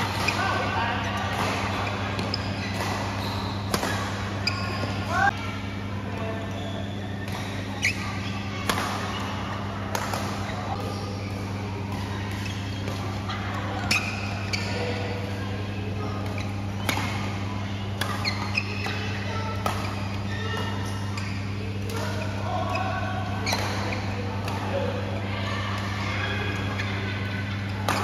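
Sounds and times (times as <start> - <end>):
court shoes squeaking: 0.0 - 28.0
racket hitting shuttlecock: 1.3 - 5.0, 8.6 - 10.6, 16.3 - 22.3, 23.3 - 25.0.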